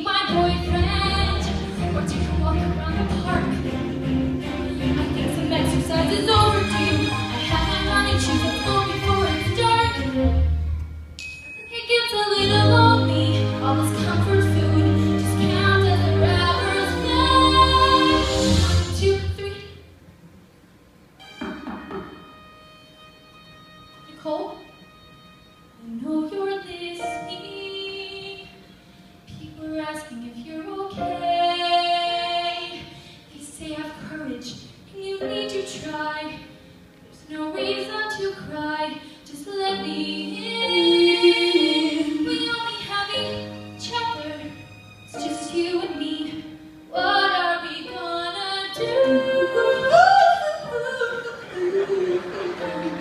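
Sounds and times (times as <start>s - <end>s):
women singing pop duet: 47.0s - 53.0s.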